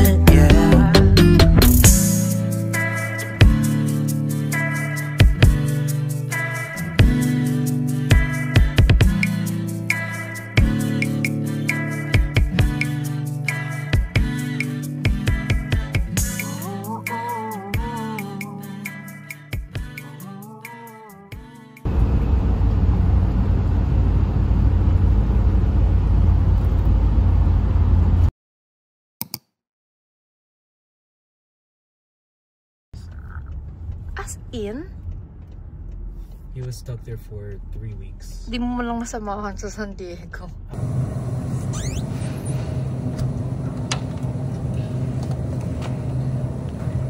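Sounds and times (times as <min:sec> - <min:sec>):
bus engine rumble: 0:21.9 - 0:28.3, 0:33.0 - 0:47.0
road noise: 0:21.9 - 0:28.3, 0:33.0 - 0:47.0
brief clicks: 0:29.2 - 0:29.5
rising squeak: 0:41.4 - 0:43.1.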